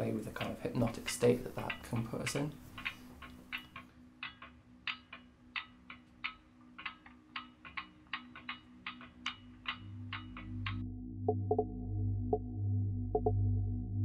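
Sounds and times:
slowed bicycle chain clicking: 0:00.0 - 0:10.8
steady low hum: 0:00.0 - 0:14.0.

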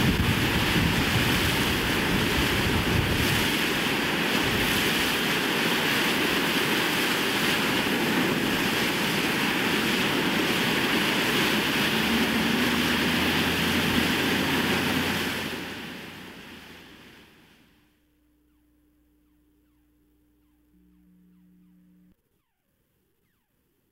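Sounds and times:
rushing water: 0:00.0 - 0:17.5.

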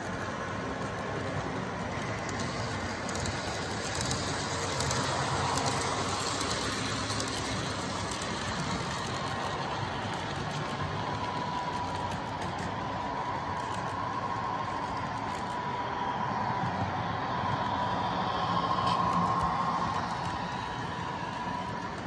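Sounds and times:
model train motors humming: 0:00.0 - 0:16.1
small wheels clicking on track: 0:00.0 - 0:22.0.

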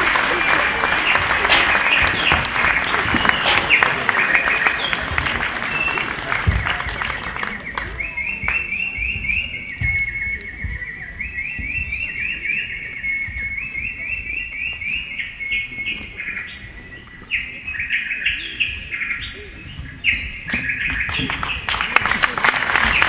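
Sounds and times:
bird-like twittering chirps: 0:07.6 - 0:21.7.

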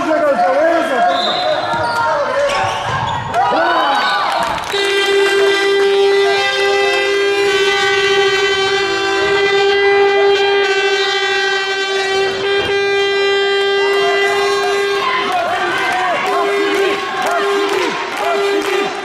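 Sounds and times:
second shorter horn tone: 0:04.7 - 0:15.4
horn long blast: 0:04.7 - 0:19.0.

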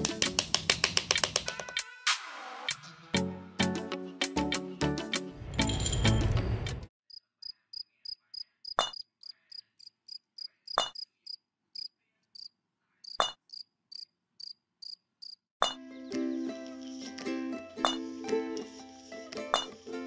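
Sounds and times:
music: 0:00.0 - 0:06.9, 0:15.8 - 0:20.0
cricket chirping: 0:07.1 - 0:15.4.

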